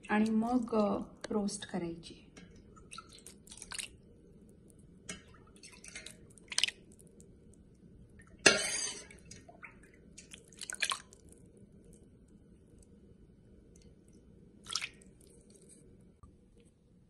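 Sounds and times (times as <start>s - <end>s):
brine sloshing and splashing: 2.5s - 4.2s, 5.1s - 7.2s, 8.1s - 11.6s, 14.6s - 16.0s.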